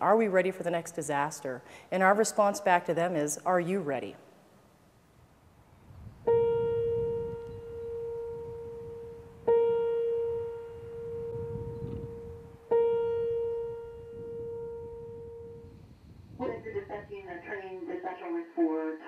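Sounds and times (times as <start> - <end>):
faint low wash of sound: 5.1 - 17.8
piano-like note ringing: 6.2 - 15.8.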